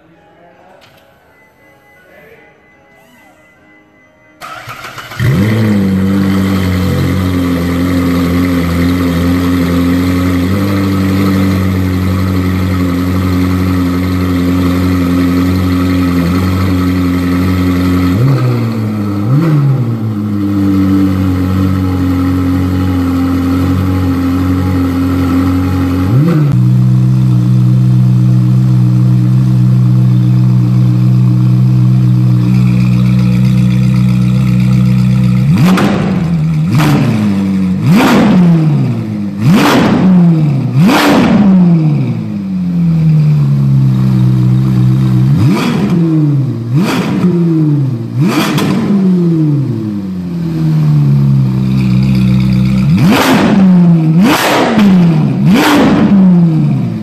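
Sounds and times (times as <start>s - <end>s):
engine throttle blips: 4.2s - 57.0s
sharp rapid engine revs: 4.4s - 10.6s, 35.4s - 42.2s, 48.2s - 49.4s, 52.8s - 57.0s
sports car engine idling: 4.4s - 57.0s.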